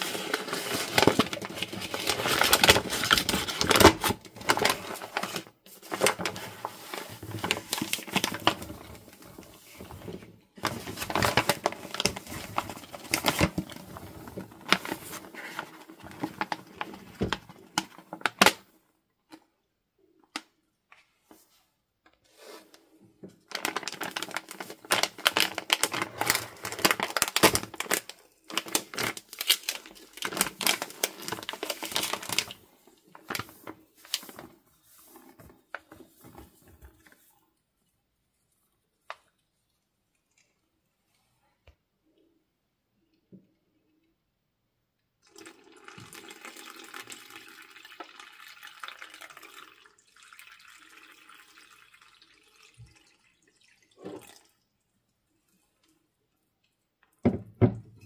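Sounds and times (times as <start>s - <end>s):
plastic bag crinkling: 0.0s - 18.6s, 23.4s - 37.3s.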